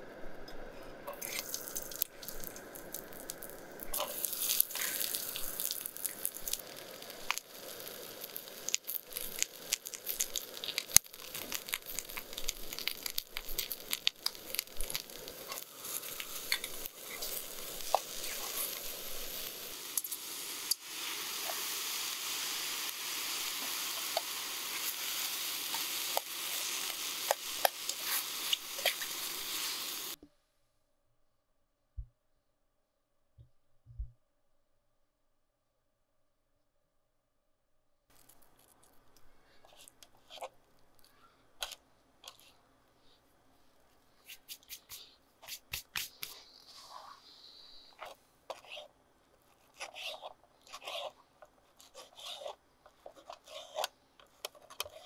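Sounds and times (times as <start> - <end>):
oil sizzling in a pan: 1.1 - 30.2, 44.3 - 48.8.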